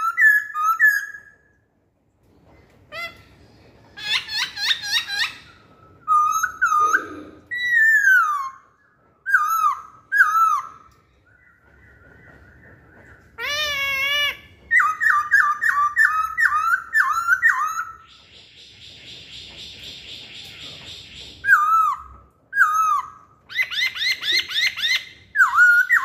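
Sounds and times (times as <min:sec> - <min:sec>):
low harsh bird call: 0:05.1 - 0:09.0.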